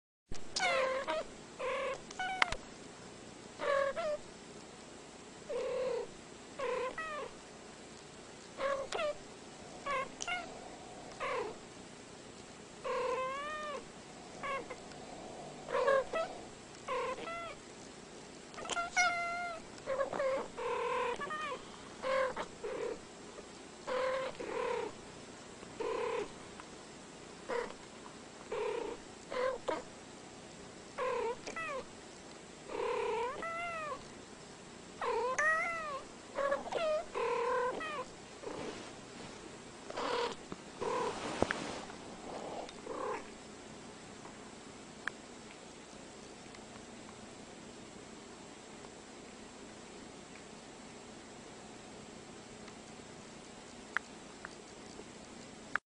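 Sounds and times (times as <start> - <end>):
cats meowing: 9.8 - 11.6, 14.4 - 15.0, 15.6 - 17.6, 18.5 - 22.5, 35.1 - 38.1.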